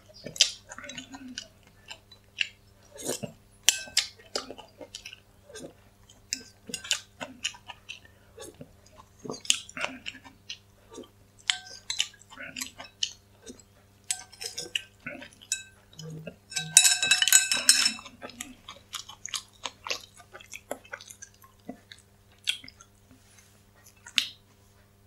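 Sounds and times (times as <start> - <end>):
person chewing: 0.2 - 24.4
utensils clinking on porcelain bowl: 3.7 - 4.0, 6.7 - 7.0, 11.4 - 12.1, 14.1 - 18.4.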